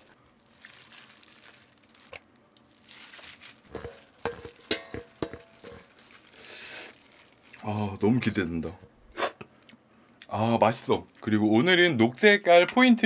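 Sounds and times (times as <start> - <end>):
gloved hands squelching raw fish: 0.0 - 7.7
metal bowl clinks and knocks: 3.7 - 5.9.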